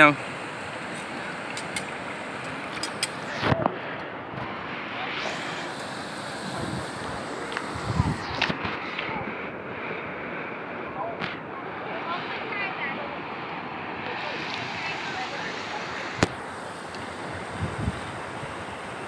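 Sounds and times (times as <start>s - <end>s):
river rushing: 0.0s - 19.0s
wind on microphone: 6.4s - 9.5s, 17.0s - 19.0s.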